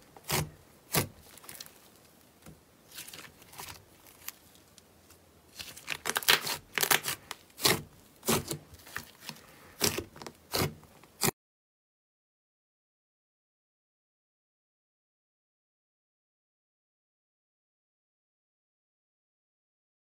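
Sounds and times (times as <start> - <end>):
hands squeezing slime: 0.2 - 2.0, 2.9 - 4.8, 5.5 - 11.3
slime popping and crackling: 5.5 - 11.3.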